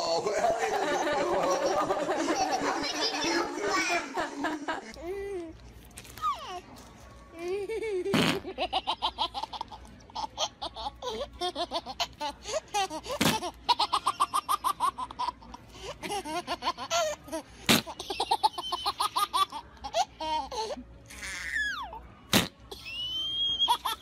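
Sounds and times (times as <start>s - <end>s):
baby giggling: 0.0s - 5.2s.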